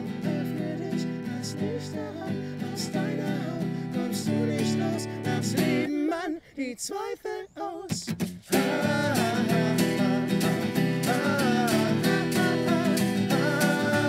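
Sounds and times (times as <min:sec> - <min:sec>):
acoustic guitar strumming: 0:00.0 - 0:05.9, 0:07.9 - 0:14.0
two men singing: 0:00.0 - 0:14.0.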